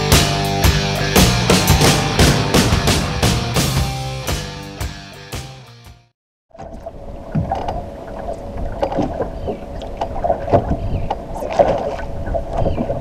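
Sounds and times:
water slapping against boat hull: 6.5 - 13.0
wind buffeting microphone: 6.9 - 13.0.

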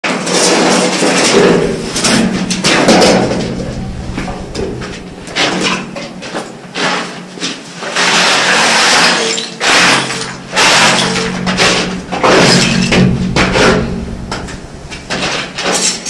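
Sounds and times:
construction knocks and bangs: 1.1 - 6.9, 8.6 - 16.0
low steady hum: 1.2 - 6.9, 9.6 - 16.0.

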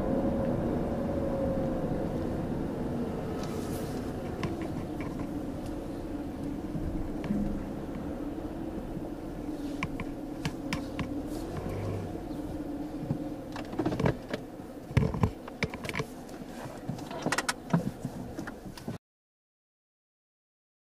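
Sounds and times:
car engine idling: 0.0 - 18.9
sharp clicks and knocks: 13.1 - 16.1, 16.8 - 19.0.

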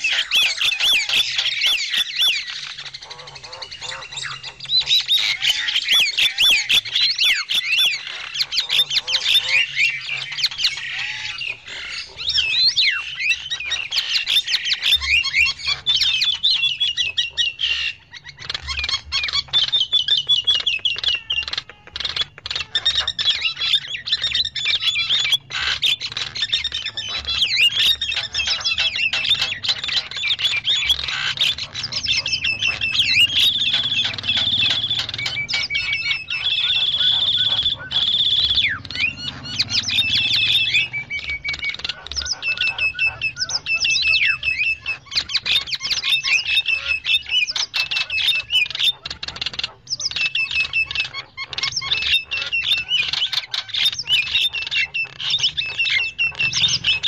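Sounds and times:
held bird whistle: 0.0 - 57.0
mynas chattering and squawking: 0.0 - 57.0.

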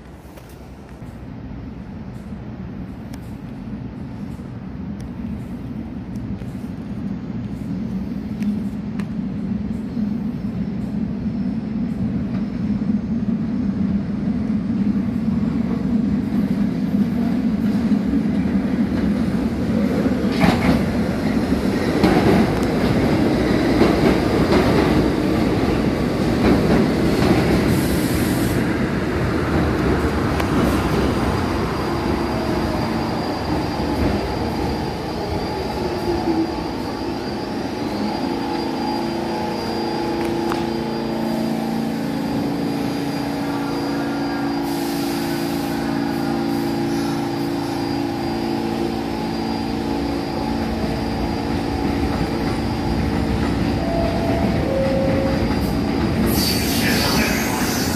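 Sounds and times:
train rumble: 0.0 - 57.9
high wheel squeal: 31.5 - 57.9.

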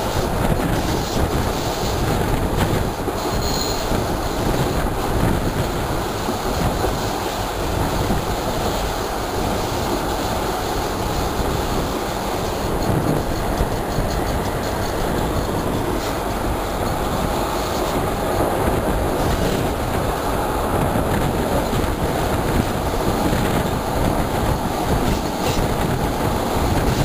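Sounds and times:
rushing air: 0.0 - 27.0
train wheels rumbling on rail: 0.0 - 27.0
faint high squeal: 3.2 - 3.9.

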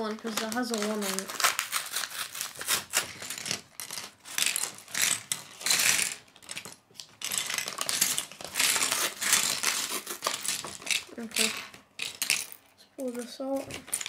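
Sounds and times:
paper bag rustling: 0.0 - 4.6
plastic pieces clattering on a table: 0.0 - 14.0.

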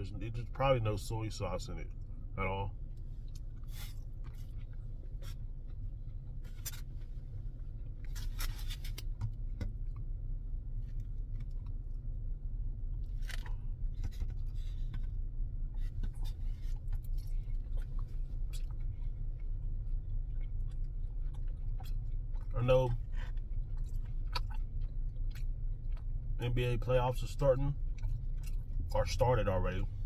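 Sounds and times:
steady low hum: 0.0 - 30.0
chewing: 2.9 - 9.1, 15.8 - 26.7, 27.6 - 29.8.

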